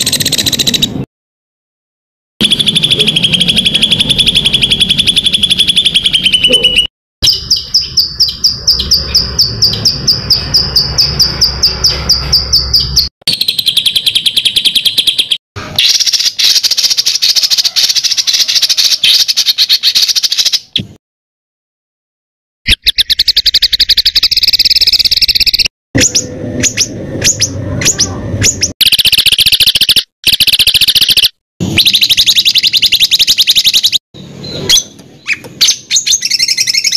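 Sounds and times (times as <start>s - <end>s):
songbird calls and trills: 22.7s - 36.9s.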